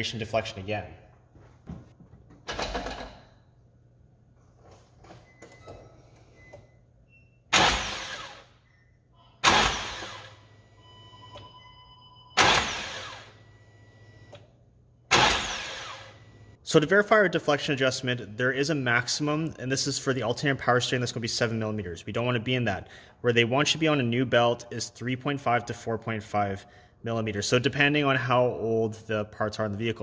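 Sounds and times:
car engine cranking: 0:09.4 - 0:10.4, 0:12.4 - 0:13.3, 0:15.1 - 0:16.1.

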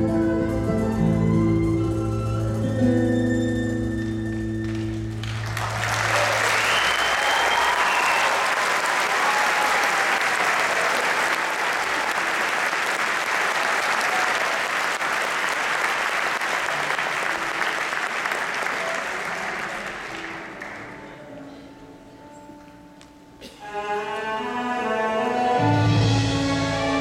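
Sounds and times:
audience applause and cheering: 0:04.6 - 0:21.0.

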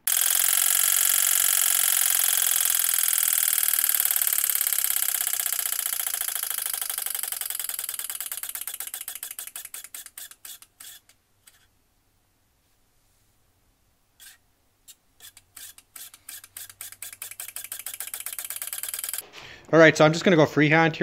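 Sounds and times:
fan scraping housing ticking: 0:00.0 - 0:11.6, 0:15.2 - 0:19.3.

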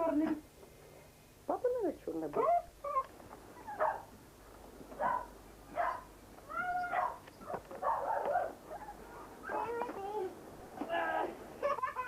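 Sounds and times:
puppies whining and yelping: 0:02.8 - 0:04.0, 0:06.6 - 0:07.6, 0:08.7 - 0:09.0.

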